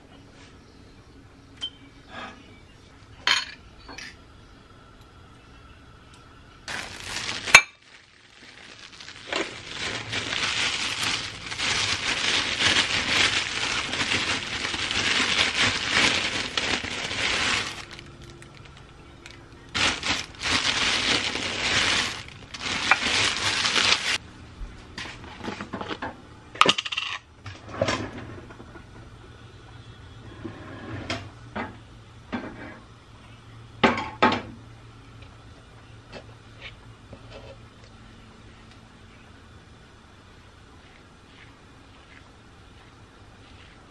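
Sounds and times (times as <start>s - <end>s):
rough scraping and rustling: 6.7s - 24.2s.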